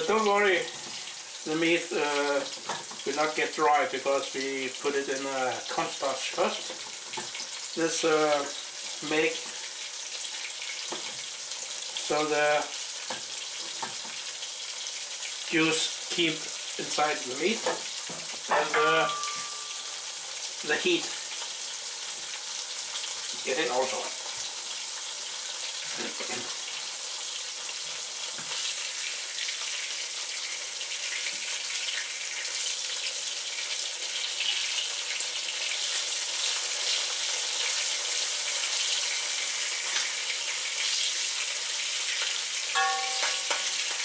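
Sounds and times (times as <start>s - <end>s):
chicken frying in hot oil: 0.0s - 44.0s
utensil ringing against wok: 18.5s - 20.2s, 42.8s - 44.0s.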